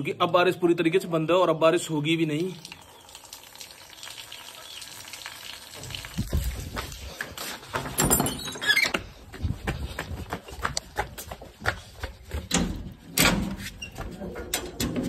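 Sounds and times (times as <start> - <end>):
footsteps on concrete: 6.2 - 14.4.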